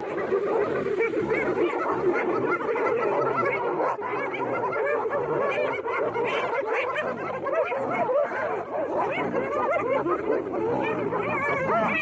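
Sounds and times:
hyenas giggling: 0.0s - 12.0s.

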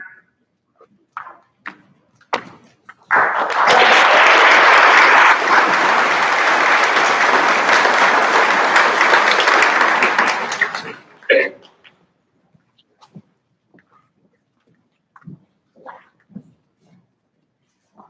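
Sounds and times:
audience applauding: 3.1s - 11.3s.

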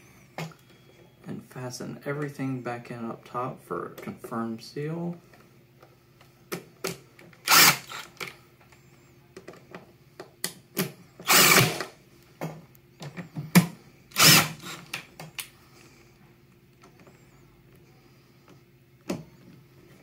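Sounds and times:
power driver driving screws: 7.4s - 8.3s, 11.2s - 11.9s, 14.1s - 15.1s.

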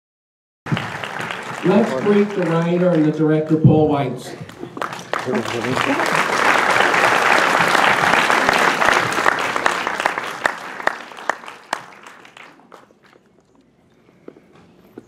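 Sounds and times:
audience applauding: 0.7s - 3.6s, 4.4s - 13.3s.

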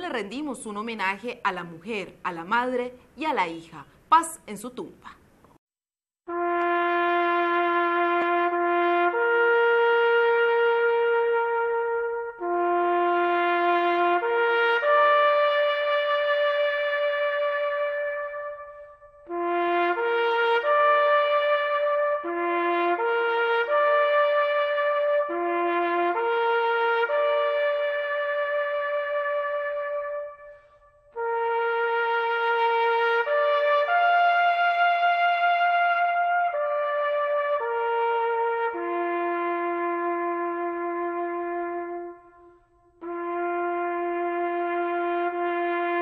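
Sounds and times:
brass wind instrument long notes: 6.2s - 46.0s
solo trumpet playing slow tune: 6.2s - 46.0s.

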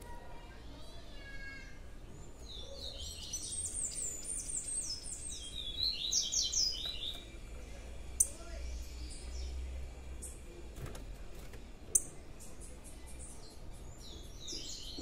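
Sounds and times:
songbird twittering: 2.3s - 7.4s.

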